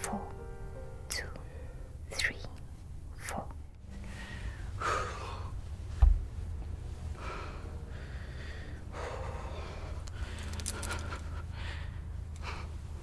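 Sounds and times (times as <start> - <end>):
steady low hum: 0.0 - 13.0
slow breathing: 3.8 - 6.0, 6.8 - 13.0
dull low thump: 5.9 - 6.4.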